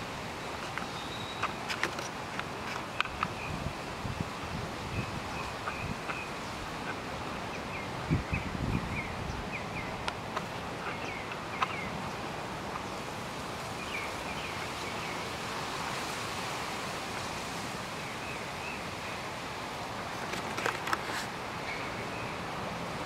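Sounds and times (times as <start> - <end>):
outdoor background rush: 0.0 - 23.0
small birds chirping: 0.4 - 3.7, 4.9 - 15.4.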